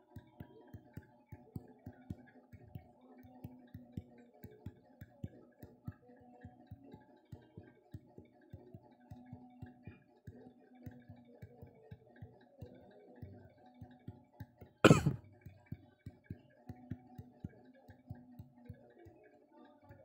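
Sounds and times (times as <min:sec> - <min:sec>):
person coughing: 0:14.9 - 0:15.2.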